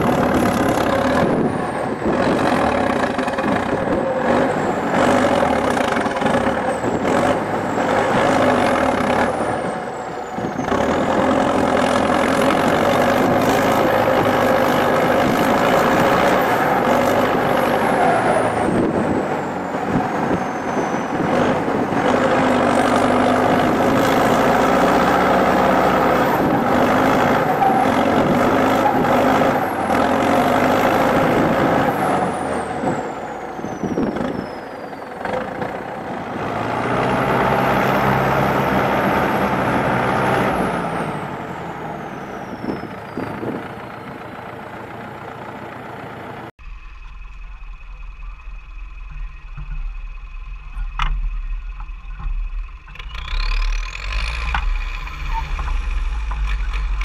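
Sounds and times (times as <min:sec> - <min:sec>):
tractor diesel engine under load: 0:00.0 - 0:57.0
turbocharger whistle: 0:52.8 - 0:57.0.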